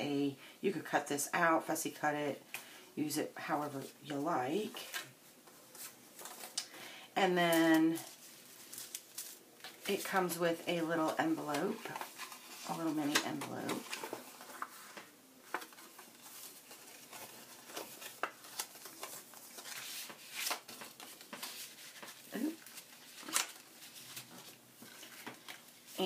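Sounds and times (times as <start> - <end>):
paper pieces rustling: 11.0 - 26.0.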